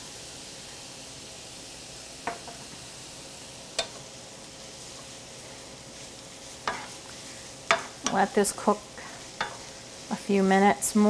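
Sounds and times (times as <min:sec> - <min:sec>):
noodles sizzling in frying pan: 0:00.0 - 0:11.0.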